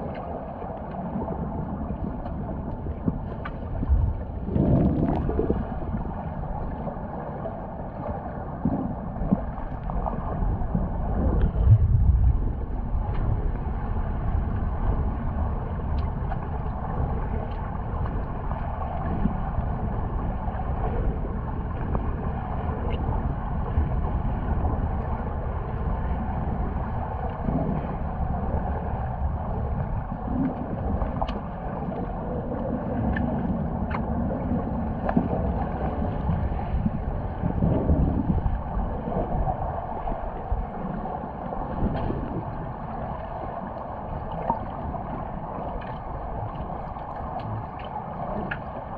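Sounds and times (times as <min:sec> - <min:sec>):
underwater low rumble: 0:00.0 - 0:48.9
faint underwater clicks: 0:01.9 - 0:05.6, 0:15.8 - 0:20.3, 0:27.0 - 0:38.7, 0:41.8 - 0:48.9.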